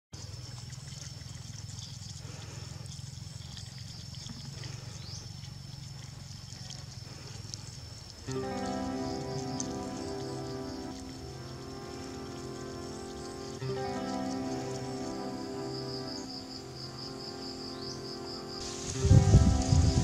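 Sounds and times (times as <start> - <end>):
faint ticks: 0.2 - 15.7
background music: 8.3 - 20.0
high-pitched whine: 8.6 - 20.0.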